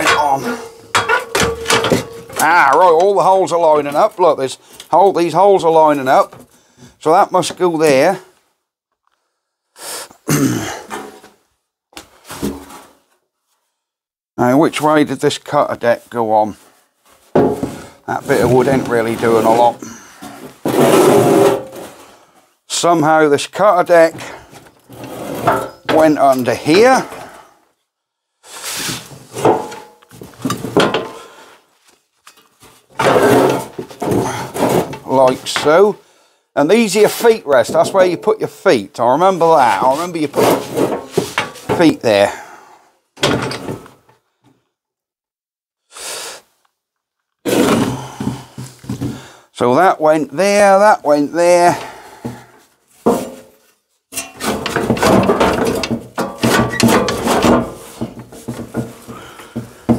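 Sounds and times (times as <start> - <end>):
metallic ring: 0.0 - 2.4
metal clanking and grating: 0.0 - 4.0, 24.8 - 26.9, 32.3 - 35.1, 39.9 - 41.8, 54.2 - 59.9
metal parts scraping and clunking: 0.0 - 5.0, 17.2 - 22.1, 24.5 - 27.2, 28.8 - 31.3, 32.2 - 35.8, 39.7 - 41.9, 43.2 - 44.1, 53.0 - 59.9.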